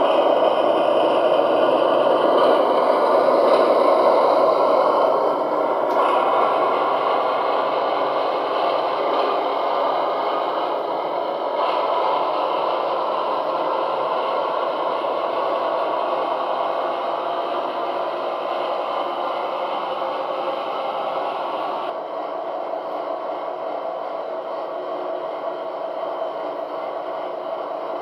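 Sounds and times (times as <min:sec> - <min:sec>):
model train running on track: 0:00.0 - 0:28.0.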